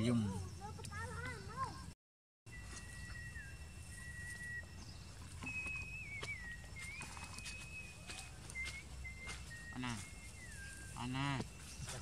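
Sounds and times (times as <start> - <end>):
high whistled animal calls: 2.5 - 12.0
crackles in dry straw: 6.7 - 12.0.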